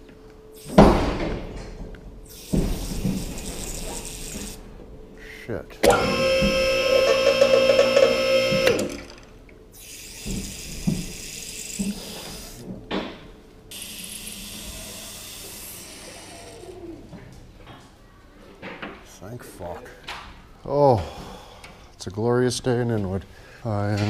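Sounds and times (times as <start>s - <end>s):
hydraulic pump motor whining: 5.8s - 9.3s
hydraulic fluid hissing: 9.8s - 12.6s, 13.7s - 16.6s.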